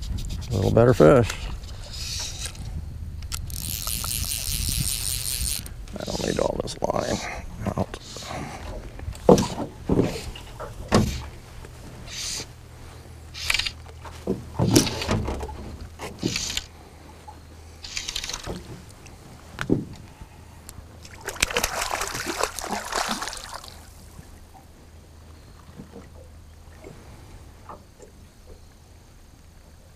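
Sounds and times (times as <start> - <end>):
knocks and bumps in boat: 6.8 - 12.0, 13.9 - 16.3, 18.4 - 20.1, 25.7 - 27.0
water splashing: 21.0 - 24.3.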